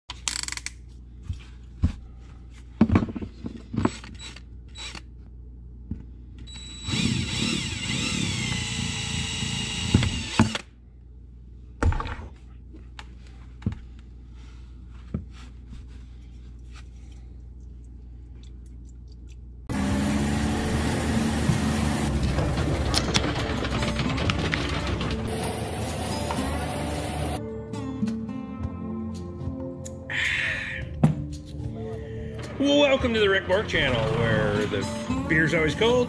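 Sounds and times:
tools clicking and knocking: 0.1s - 0.8s
cordless drill whining: 6.5s - 10.7s.

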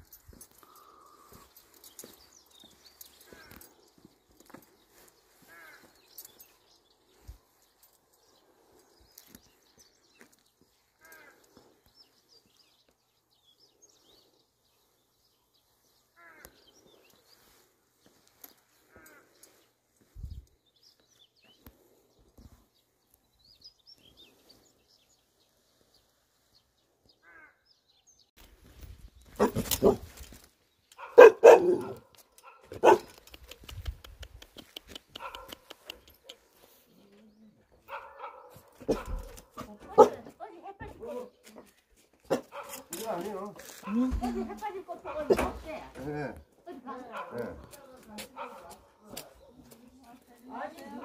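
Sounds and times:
dog barking: 29.4s - 30.0s, 31.0s - 33.1s, 35.2s - 35.7s, 37.9s - 40.3s, 42.3s - 43.0s, 45.0s - 45.6s, 47.1s - 47.7s, 48.4s - 49.6s.

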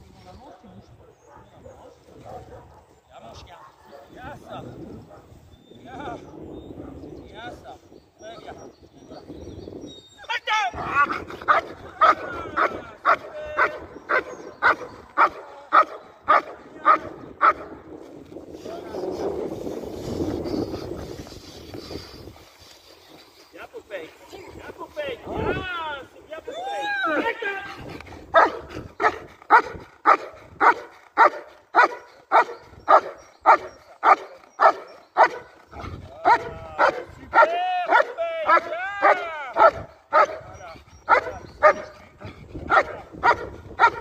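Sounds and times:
dog barking: 0.5s - 2.9s, 3.5s - 4.2s, 11.5s - 17.7s, 28.3s - 35.5s, 36.2s - 40.5s, 41.1s - 42.0s, 42.7s - 44.0s
dog barking sharply: 28.4s - 35.4s.

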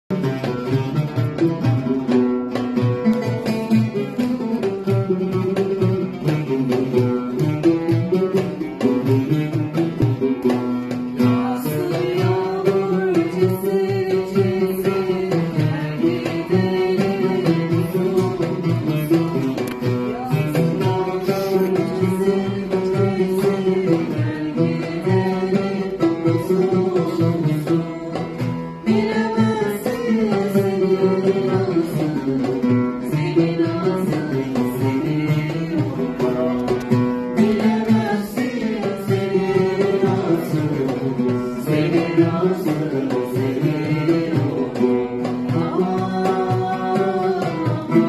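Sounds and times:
plucked string instrument: 0.0s - 48.0s
women singing together: 11.2s - 48.0s.

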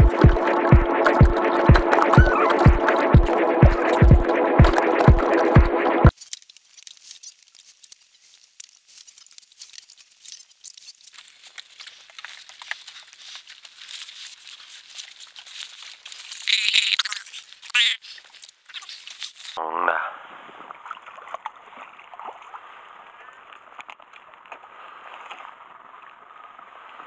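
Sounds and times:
faint crackling and rustling: 6.1s - 19.6s, 20.5s - 27.0s.

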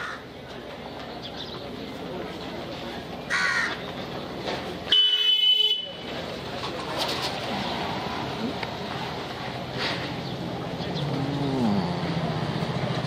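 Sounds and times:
crow cawing: 0.0s - 0.2s, 3.3s - 3.8s
low street hubbub: 0.0s - 13.0s.

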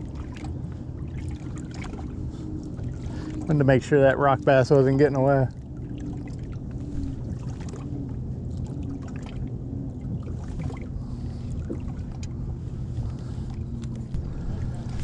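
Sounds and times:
low steady hum: 0.0s - 15.0s
water slapping boat hull: 0.0s - 15.0s.

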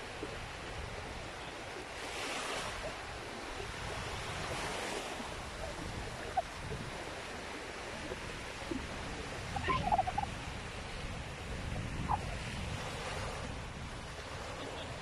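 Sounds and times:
small waves breaking on sand: 0.0s - 15.0s
wind rumble on microphone: 0.0s - 15.0s.

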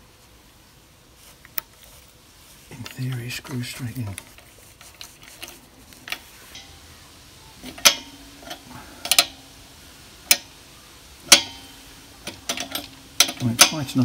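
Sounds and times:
spanner clicking on metal: 7.6s - 9.4s, 11.2s - 14.0s.

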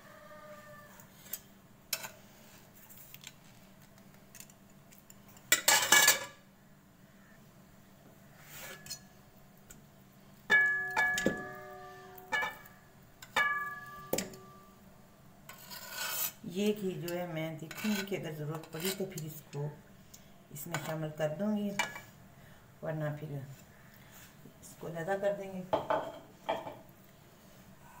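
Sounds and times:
metal spatula scraping a pan: 8.4s - 9.1s, 15.5s - 16.4s, 17.6s - 19.2s
spatula clanging on a pan: 10.5s - 14.7s.

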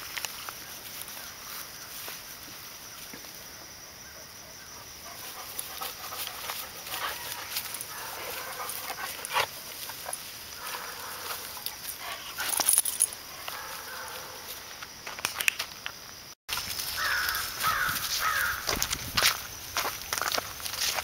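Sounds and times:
dog sniffing and snuffling: 5.0s - 14.6s
branches rustling: 5.1s - 15.7s, 16.5s - 21.0s.

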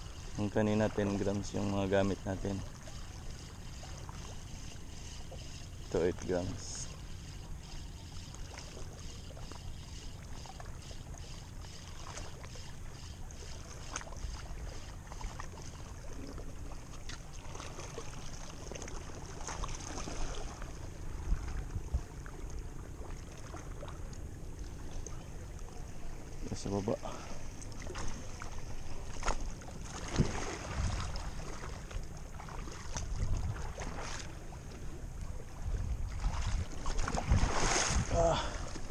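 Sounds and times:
fishing reel ticking: 0.0s - 15.9s
water lapping: 0.0s - 38.9s
wind on microphone: 21.1s - 22.1s, 30.1s - 31.2s, 33.0s - 34.0s, 35.5s - 38.3s.

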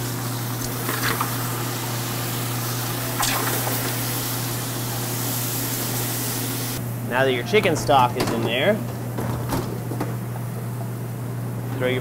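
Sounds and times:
stock boiling and sizzling in a pan: 0.0s - 6.8s
steady low hum: 1.4s - 12.0s.

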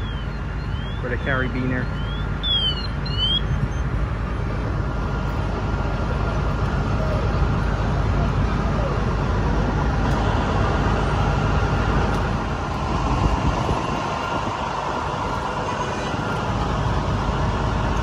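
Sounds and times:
diesel engines idling: 0.0s - 18.0s
street noise: 0.0s - 18.0s.

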